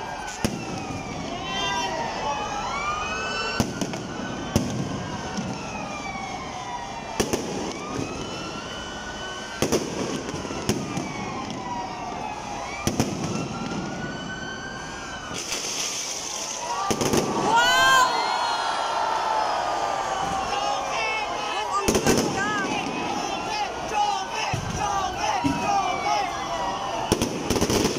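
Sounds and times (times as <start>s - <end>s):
fireworks bursting bangs: 0.0s - 1.2s, 3.6s - 6.2s, 7.1s - 8.4s, 9.4s - 11.8s, 12.7s - 14.0s, 15.2s - 17.8s, 21.7s - 26.0s, 27.0s - 27.9s
fireworks crackle and rumble: 0.0s - 27.9s.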